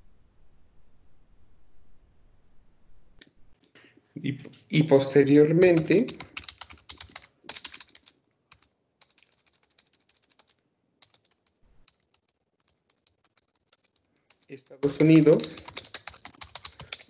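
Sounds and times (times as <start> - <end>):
computer keyboard typing: 4.6 - 17.0.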